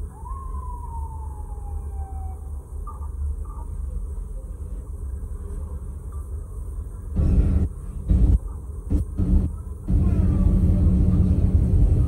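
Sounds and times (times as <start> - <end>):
cars idling in traffic: 2.4 - 12.0.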